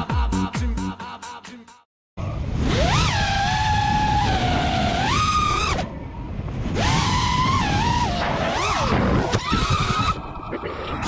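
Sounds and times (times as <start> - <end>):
wind rumble: 2.2 - 11.0.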